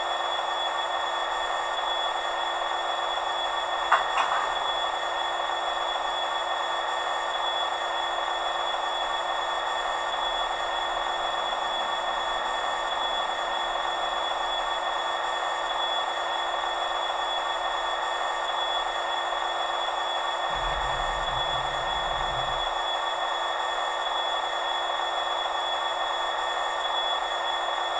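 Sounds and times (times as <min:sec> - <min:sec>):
small speaker engine hum: 0:20.6 - 0:22.8.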